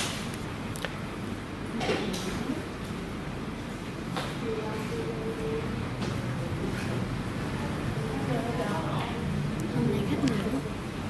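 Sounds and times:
room noise: 0.0s - 11.0s
distant voices: 4.0s - 11.0s.

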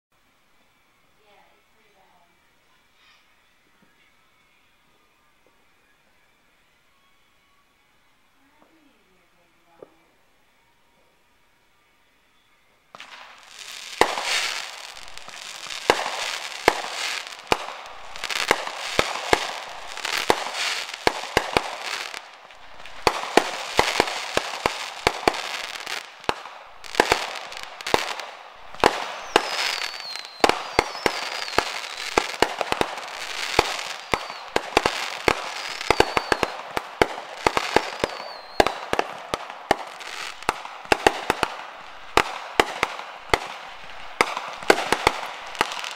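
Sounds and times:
firecrackers crackling: 12.9s - 45.9s
firework bangs and pops: 12.9s - 45.9s
high wavering firework whistle: 12.9s - 45.9s.

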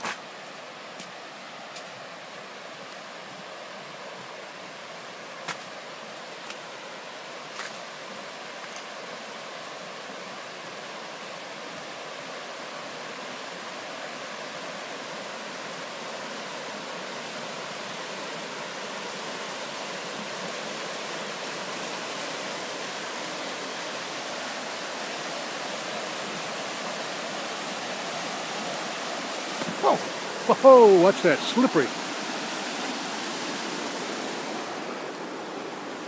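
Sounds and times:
river rushing over rapids: 0.0s - 36.0s.

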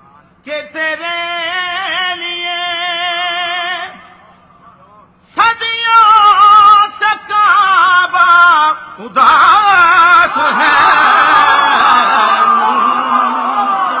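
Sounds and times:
man chanting into a microphone: 0.0s - 11.0s.

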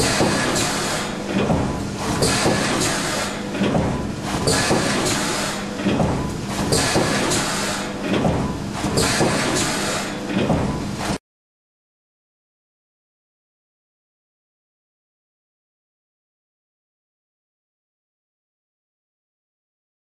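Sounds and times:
machine mechanical strokes and hisses: 0.0s - 11.2s
steady machine hum: 0.0s - 11.2s.

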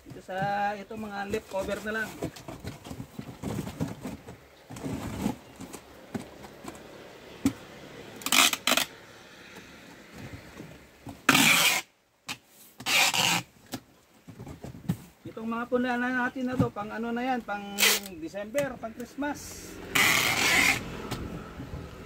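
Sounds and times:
cardboard rustling: 0.0s - 6.9s
packing tape ripping: 8.2s - 8.9s, 11.3s - 11.9s, 12.8s - 13.5s, 17.8s - 18.2s, 20.0s - 20.9s.

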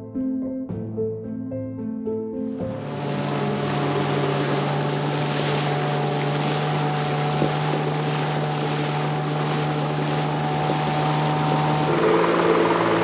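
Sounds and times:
motorboat engine drone: 2.6s - 13.0s
water rushing: 2.6s - 13.0s
wind: 2.7s - 13.0s.

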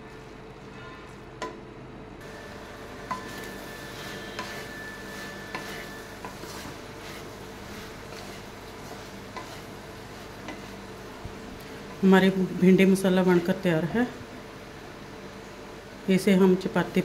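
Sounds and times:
vegetables sizzling in a pan: 2.2s - 17.0s
wooden spatula stirring: 2.3s - 13.6s.

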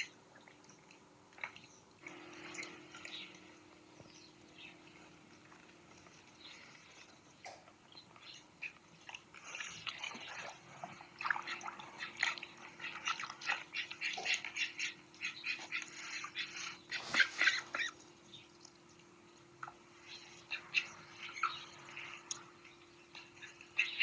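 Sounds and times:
duck dabbling in water: 7.4s - 18.0s.

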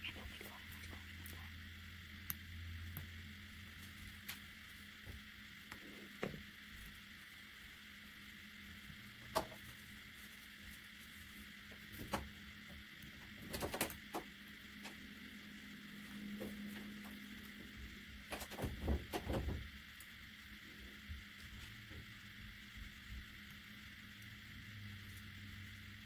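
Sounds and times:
steady low hum: 0.0s - 26.0s
small clicks and scrapes: 9.3s - 15.0s, 18.2s - 20.2s.

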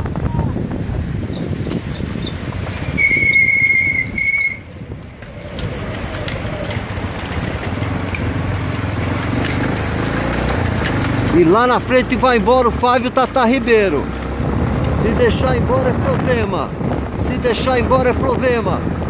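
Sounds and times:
motorcycle engine rumble: 0.0s - 19.0s
wind rush: 0.0s - 19.0s
high-pitched whistle-like tone: 3.0s - 4.7s.

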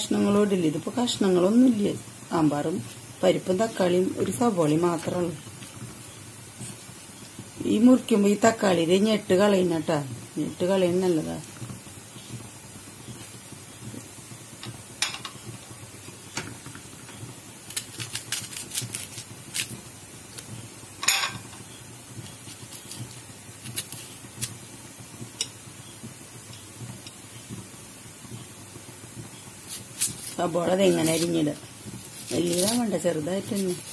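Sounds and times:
knife cutting vegetables: 17.7s - 20.4s, 22.2s - 24.6s, 29.7s - 33.9s.

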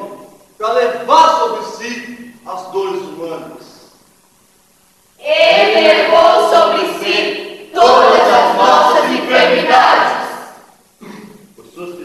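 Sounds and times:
choir singing loudly: 5.2s - 10.6s.

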